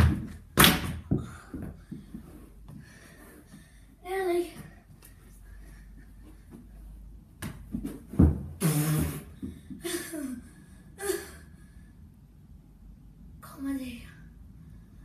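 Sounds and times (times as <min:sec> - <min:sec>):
body thudding on carpeted floor: 0:07.4 - 0:08.6.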